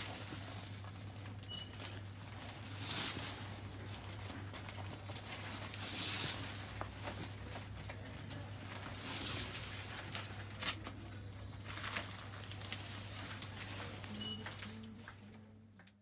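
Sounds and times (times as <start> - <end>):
fabric rustling: 0.0 - 10.7
steady low hum: 0.0 - 16.0.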